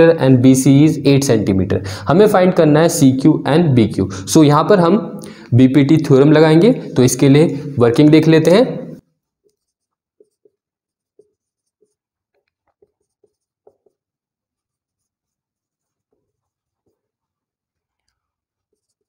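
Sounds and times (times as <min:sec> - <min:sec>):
marker pen on whiteboard: 0:05.8 - 0:19.0.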